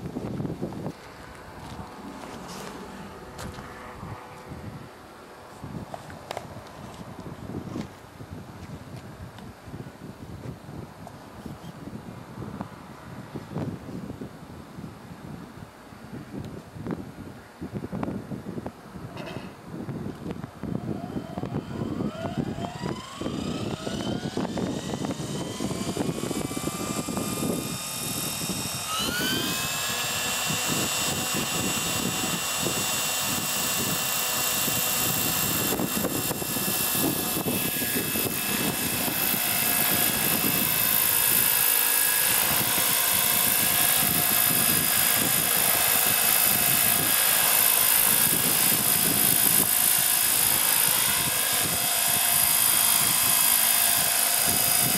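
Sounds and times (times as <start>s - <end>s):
helicopter rotor noise: 0.0s - 7.9s, 20.2s - 54.9s
model helicopter motor whine: 0.0s - 8.0s, 20.1s - 54.9s.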